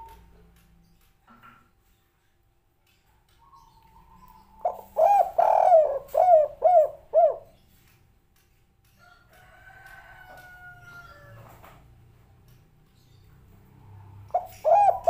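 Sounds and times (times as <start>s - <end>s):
dove cooing: 3.6s - 7.6s, 14.3s - 15.0s.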